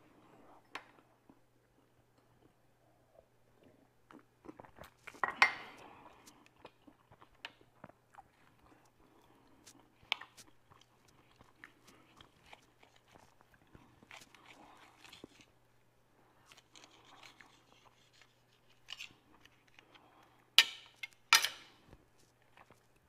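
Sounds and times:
chewing: 0:03.6 - 0:15.6, 0:16.4 - 0:20.5, 0:22.2 - 0:23.0.

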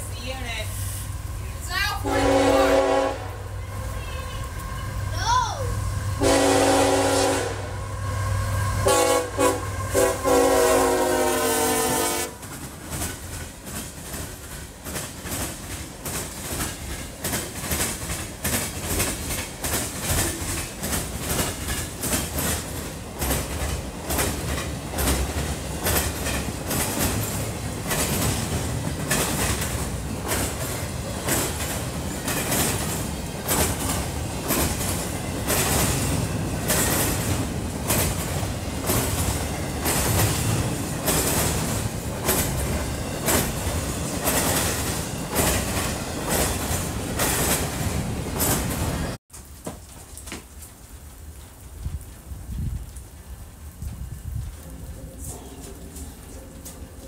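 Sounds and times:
train rumble: 0:00.0 - 0:49.2, 0:51.0 - 0:57.0
locomotive air horn: 0:02.0 - 0:05.1, 0:06.2 - 0:12.5
train wheels clicking on rails: 0:08.8 - 0:50.7.

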